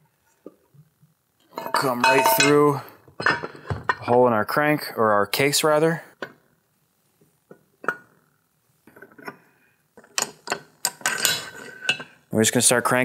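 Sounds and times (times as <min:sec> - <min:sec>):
metal tool clinking: 0:01.5 - 0:03.5.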